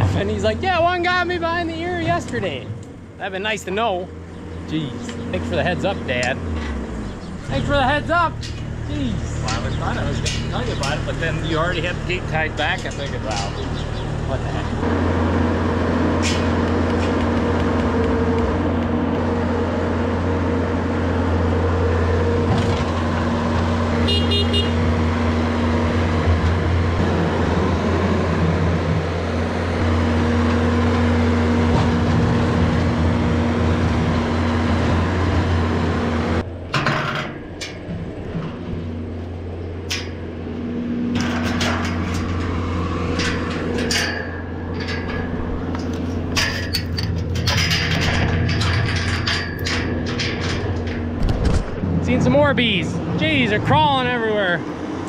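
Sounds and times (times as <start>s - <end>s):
loader engine running: 0.0s - 55.0s
clicks and knocks: 41.0s - 51.9s.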